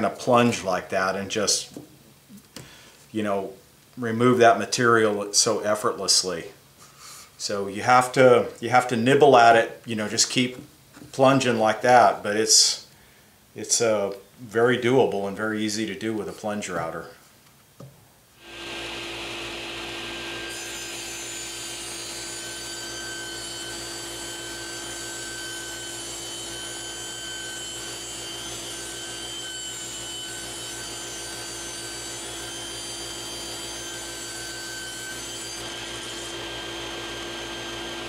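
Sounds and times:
table saw ripping wood: 18.4s - 38.0s.

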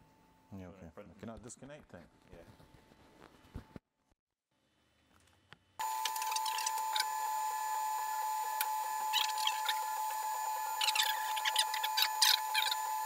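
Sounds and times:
print-head motors chirping: 5.8s - 13.0s
printer high hum: 5.8s - 13.0s.

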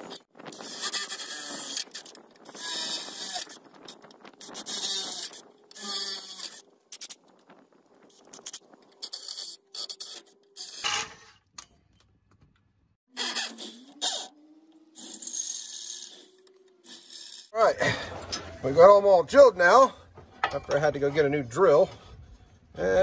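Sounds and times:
drill bit scraping metal: 0.0s - 7.2s, 13.1s - 14.3s, 14.9s - 17.5s
power drill motor whine: 13.2s - 17.5s.

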